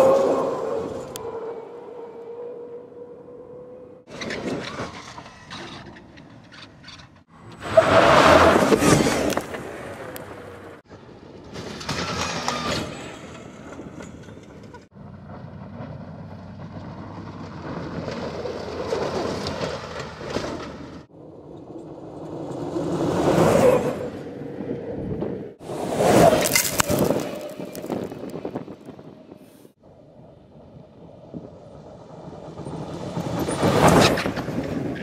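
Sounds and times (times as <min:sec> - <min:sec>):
tyre and gravel noise with rattles: 0:11.5 - 0:21.0, 0:25.9 - 0:29.1.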